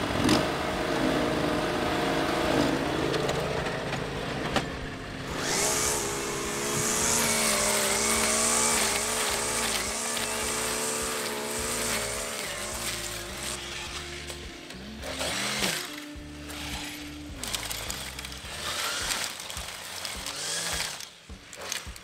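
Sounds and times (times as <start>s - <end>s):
riding lawn mower engine: 0.0s - 22.0s
string trimmer cutting grass: 0.0s - 22.0s.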